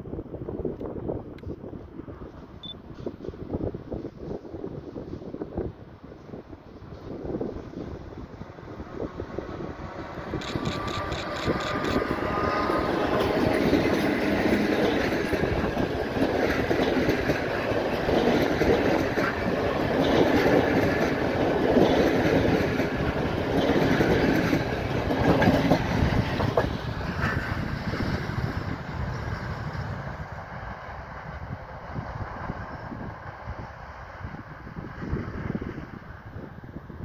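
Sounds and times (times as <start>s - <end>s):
train wheels clattering on rails: 10.0s - 30.3s.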